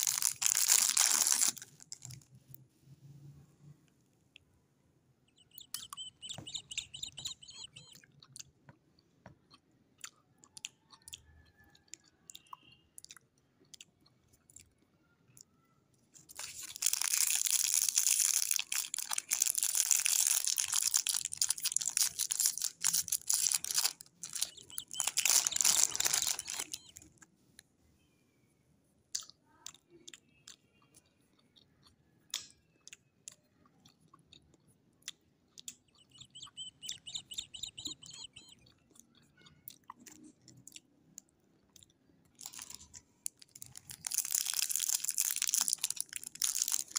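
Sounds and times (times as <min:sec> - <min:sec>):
plastic wrapper crinkling: 0:00.0 - 0:02.3, 0:16.2 - 0:27.2, 0:42.4 - 0:46.9.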